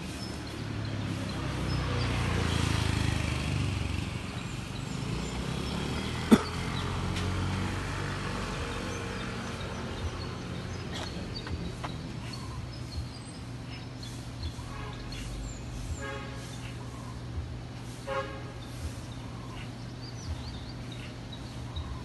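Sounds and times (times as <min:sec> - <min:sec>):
vehicle engines rumbling: 0:00.0 - 0:22.0.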